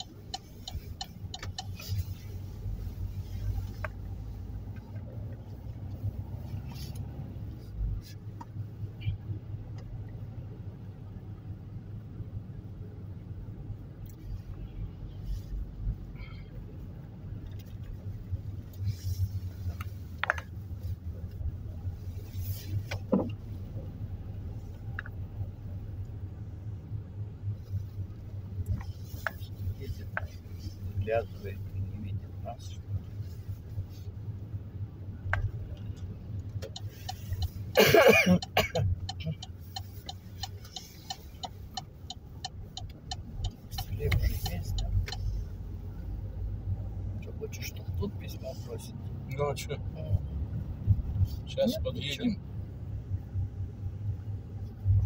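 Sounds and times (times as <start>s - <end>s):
turn-signal indicator ticking: 0.0s - 2.2s, 35.2s - 46.5s
engine and tyre rumble: 0.0s - 55.0s.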